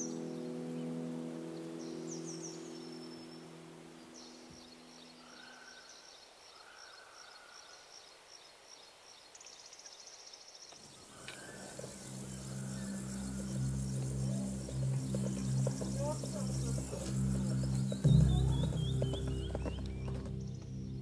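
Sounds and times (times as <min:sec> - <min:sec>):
small birds chirping: 0:00.0 - 0:21.0
insect-like trill: 0:10.9 - 0:19.9.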